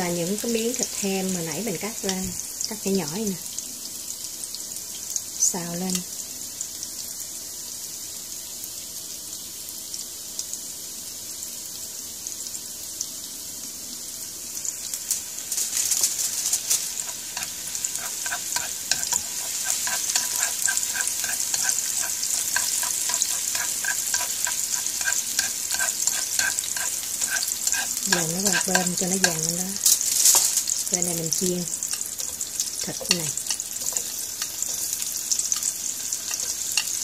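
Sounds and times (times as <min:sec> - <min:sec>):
shallots sizzling in oil: 0:00.0 - 0:37.0
chopsticks tapping a pan: 0:17.0 - 0:30.5, 0:31.9 - 0:37.0.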